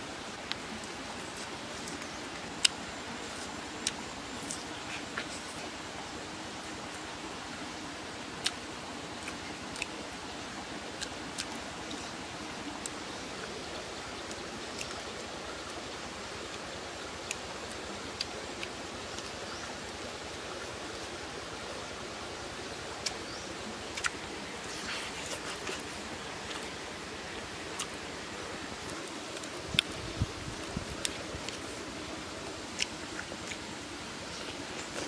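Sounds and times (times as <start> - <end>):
steady hiss: 0.0 - 35.0
mouth smacks and clicks: 23.9 - 26.8.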